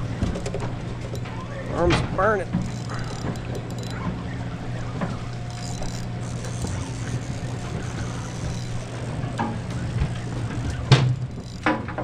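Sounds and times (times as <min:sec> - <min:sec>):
boat engine humming: 0:00.0 - 0:12.0
water noise: 0:00.0 - 0:12.0.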